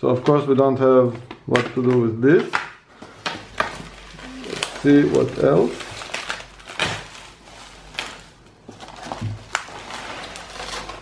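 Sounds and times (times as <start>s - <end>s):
bubble wrap crinkling: 2.4s - 11.0s.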